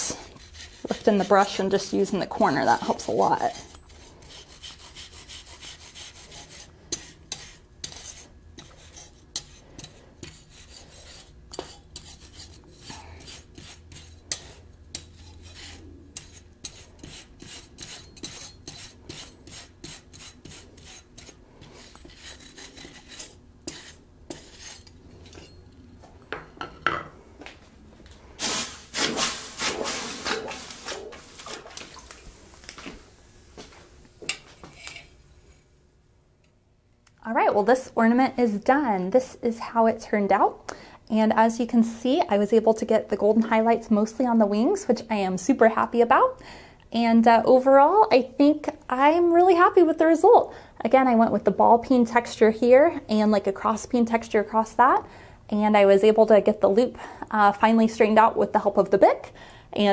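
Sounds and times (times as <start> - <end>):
wire brush scraping metal: 3.4 - 25.6, 28.4 - 31.7.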